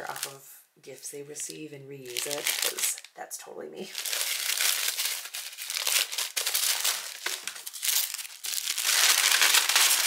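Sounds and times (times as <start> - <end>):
tissue paper crinkling: 1.4 - 3.1, 3.9 - 10.0.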